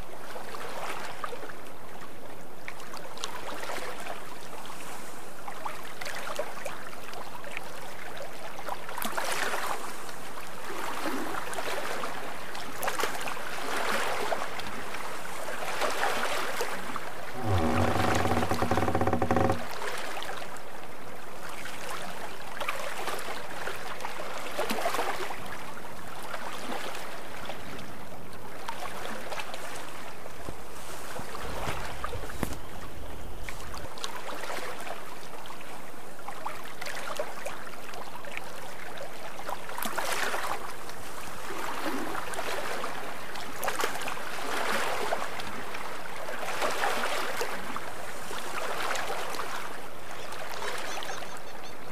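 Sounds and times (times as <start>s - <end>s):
water rushing along boat hull: 0.0s - 51.9s
low rumble: 17.4s - 19.7s.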